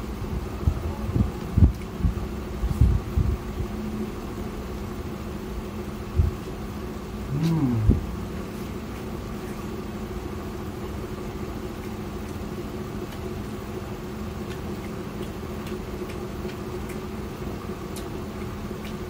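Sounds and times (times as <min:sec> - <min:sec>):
steady mechanical hum: 0:00.0 - 0:19.0
person eating and chewing: 0:07.2 - 0:09.7, 0:14.4 - 0:17.2.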